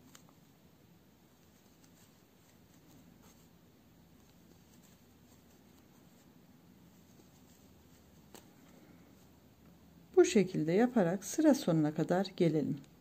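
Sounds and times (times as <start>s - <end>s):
crochet hook rustling yarn: 0.0s - 9.8s.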